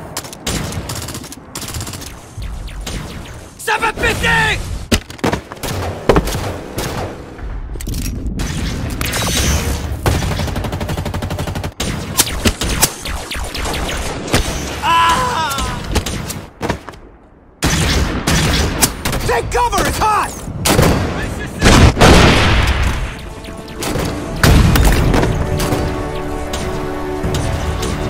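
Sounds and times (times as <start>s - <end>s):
rifle shots in rapid bursts: 0.4s - 3.5s, 8.4s - 14.7s
people shouting: 14.8s - 15.8s
loud explosion: 21.6s - 23.1s.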